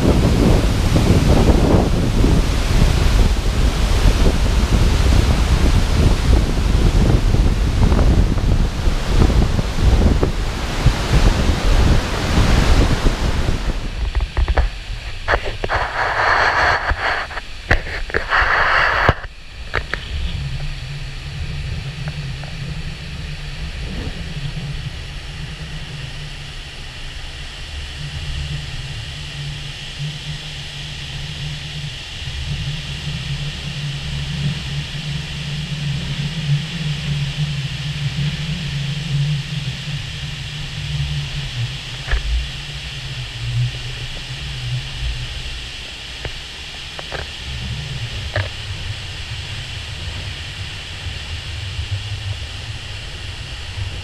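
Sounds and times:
waterfall rushing: 0:00.0 - 0:17.3
wind buffeting microphone: 0:00.0 - 0:54.0.

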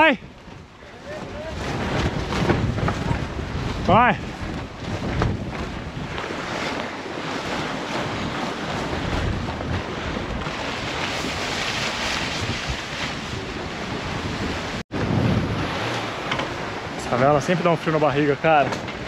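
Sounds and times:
sea water rushing: 0:00.0 - 0:19.0
wind buffeting microphone: 0:00.0 - 0:19.0.

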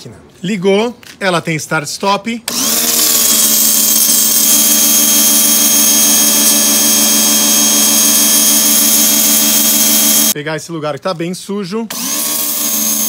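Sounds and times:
pressure washer motor humming: 0:02.5 - 0:10.4.

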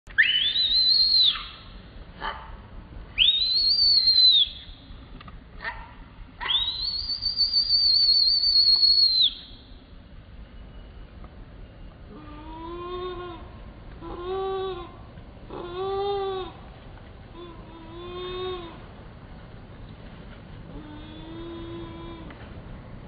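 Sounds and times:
baby monkey screaming: 0:00.2 - 0:02.4, 0:06.4 - 0:09.3, 0:15.5 - 0:16.6.

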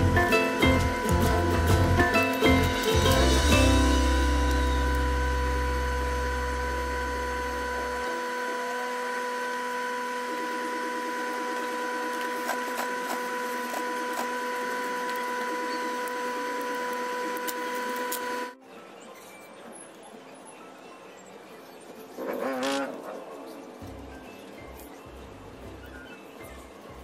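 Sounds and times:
sewing machine humming: 0:00.0 - 0:18.6.

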